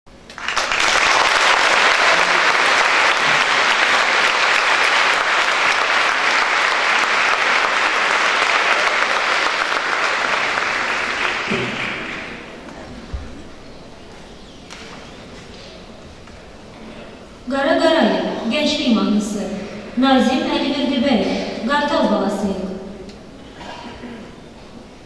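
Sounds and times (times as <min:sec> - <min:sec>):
audience applauding: 0:00.2 - 0:12.7.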